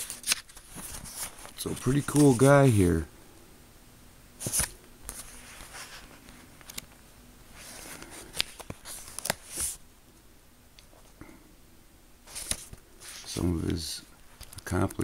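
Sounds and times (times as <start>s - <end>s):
book pages turning: 0.0s - 2.9s, 4.4s - 6.9s, 7.5s - 9.8s, 12.3s - 15.0s.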